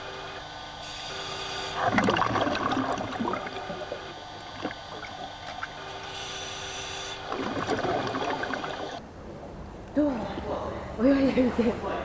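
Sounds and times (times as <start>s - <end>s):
underwater bubbling and gurgling: 1.8s - 5.8s, 7.2s - 9.0s.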